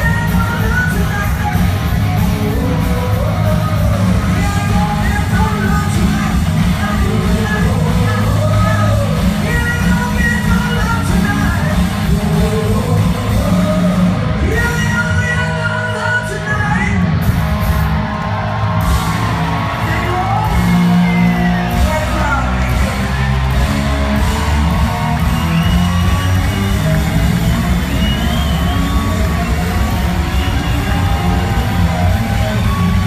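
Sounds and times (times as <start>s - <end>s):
woman singing: 0.0s - 1.7s, 2.3s - 16.4s
live rock band playing: 0.0s - 33.0s.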